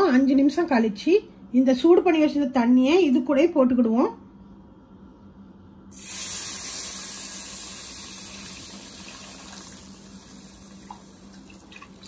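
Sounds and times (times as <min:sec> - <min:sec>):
mixture bubbling: 0:05.9 - 0:12.0
water hissing in hot fat: 0:05.9 - 0:12.0.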